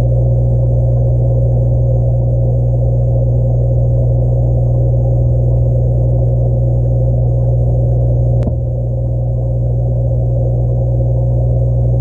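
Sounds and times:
muffled aquarium equipment hum: 0:00.0 - 0:12.0.

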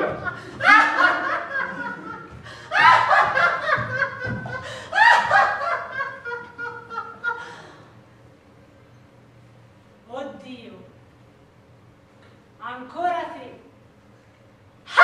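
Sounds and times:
woman laughing loudly: 0:00.0 - 0:07.8.

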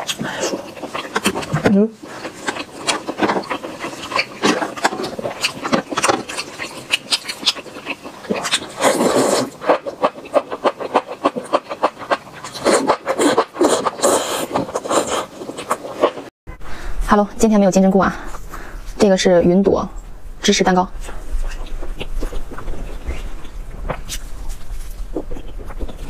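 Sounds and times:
wet chewing and mouth smacking: 0:00.0 - 0:16.3, 0:21.0 - 0:26.0
mushrooms bitten and sucked in: 0:12.6 - 0:16.3.

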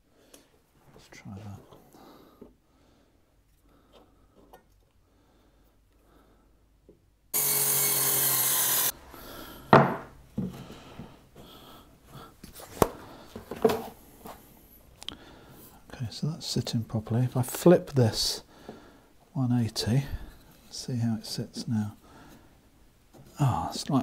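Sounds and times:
mitre saw cutting wood: 0:07.4 - 0:09.0.

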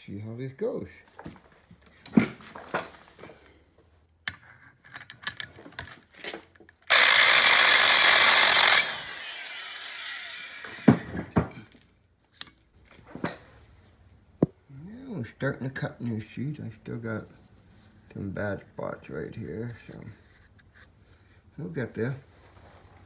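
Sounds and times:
valve seat grinder running: 0:06.9 - 0:11.2.

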